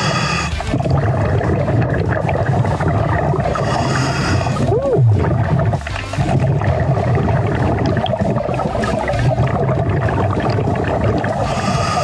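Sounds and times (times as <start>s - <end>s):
underwater regulator breathing: 0.0s - 1.1s, 3.2s - 5.7s, 11.0s - 12.0s
exhaled bubbles gurgling: 0.0s - 12.0s.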